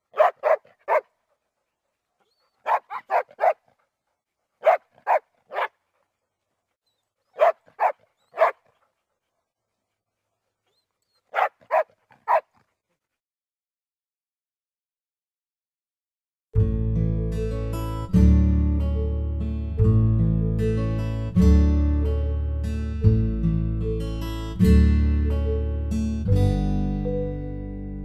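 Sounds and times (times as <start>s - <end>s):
dog barking: 0.1s - 1.1s, 2.6s - 3.7s, 4.6s - 5.8s, 7.3s - 8.7s, 11.2s - 12.6s.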